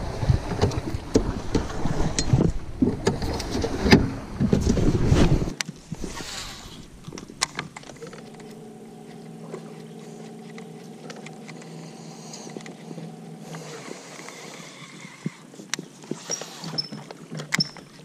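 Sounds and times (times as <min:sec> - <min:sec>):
electric trolling motor humming: 0:06.5 - 0:15.7.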